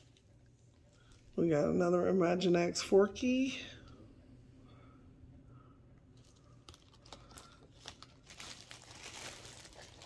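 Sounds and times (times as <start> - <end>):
plastic bag crinkling: 6.1 - 10.0.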